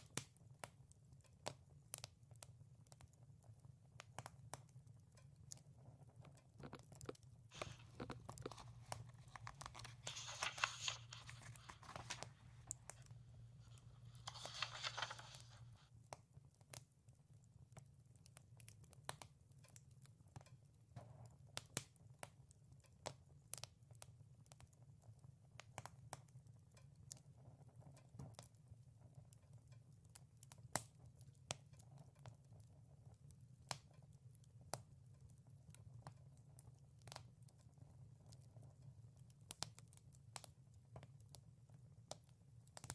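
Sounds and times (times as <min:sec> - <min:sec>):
wood fire crackling and popping: 0:00.0 - 0:42.9
book pages turning: 0:07.5 - 0:15.8.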